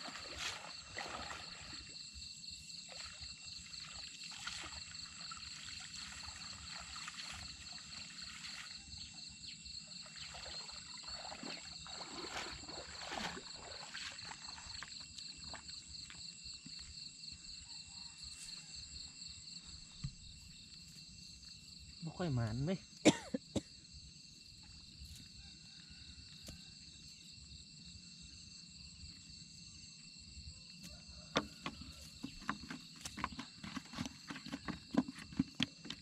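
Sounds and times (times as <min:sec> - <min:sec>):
water sloshing and splashing: 0:00.0 - 0:16.3, 0:31.3 - 0:36.0
insects trilling: 0:00.0 - 0:36.0.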